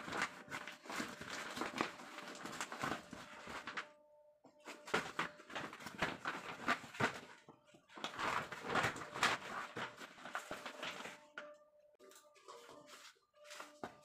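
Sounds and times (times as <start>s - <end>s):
plastic sack rustling and crinkling: 0.0s - 3.9s, 4.7s - 11.3s.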